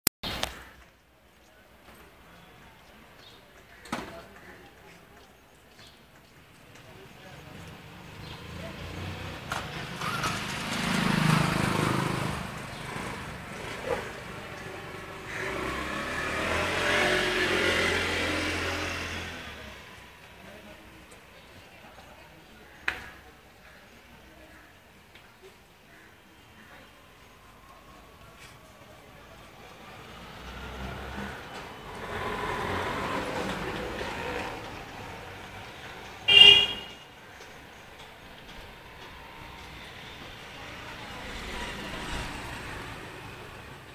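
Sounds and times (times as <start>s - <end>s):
vehicles passing on street: 0.2s - 43.9s
car horn honk: 36.3s - 37.0s.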